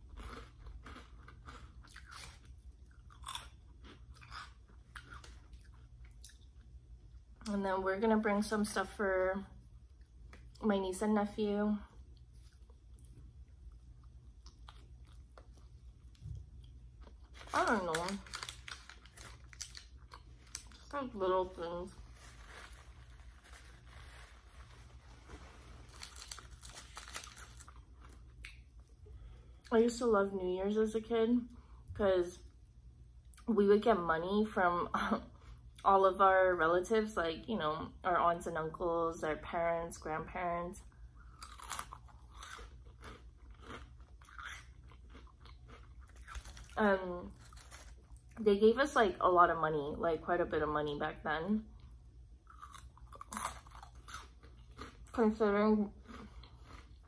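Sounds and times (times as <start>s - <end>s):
crunching and chewing snacks: 0.0s - 6.7s, 12.1s - 21.2s, 25.6s - 29.0s, 41.2s - 48.4s, 51.8s - 57.0s
low steady hum: 0.0s - 57.0s
paper crinkling and rustling: 22.0s - 27.7s.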